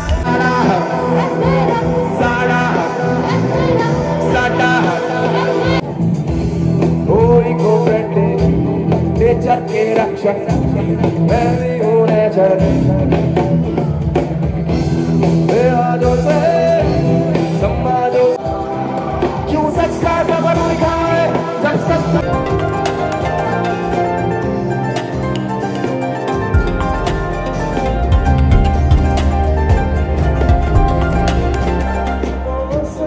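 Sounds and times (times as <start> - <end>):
person singing: 0.0 - 5.9, 7.0 - 13.8, 28.0 - 33.0
live band playing: 0.0 - 33.0.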